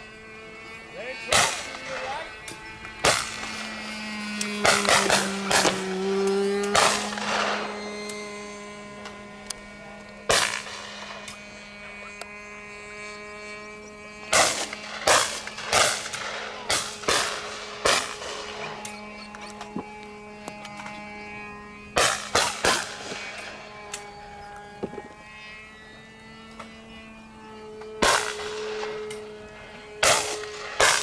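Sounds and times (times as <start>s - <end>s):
steady hum: 0.0s - 31.0s
shotgun shots echoing: 10.3s - 11.2s, 14.3s - 18.6s, 28.0s - 28.8s, 30.0s - 31.0s.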